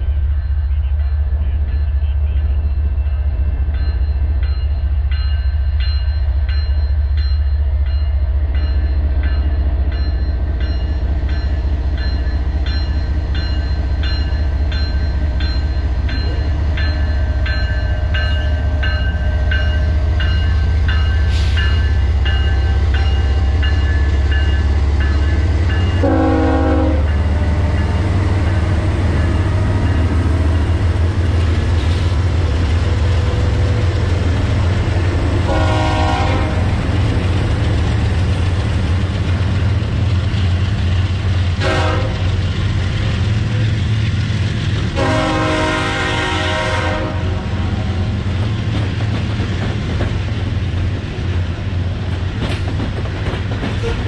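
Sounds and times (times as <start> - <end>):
locomotive bell ringing: 0.0 - 31.6
diesel locomotive engine drone: 0.0 - 54.0
train horn blast: 26.0 - 27.7, 35.4 - 36.9, 41.6 - 42.4, 44.9 - 47.9.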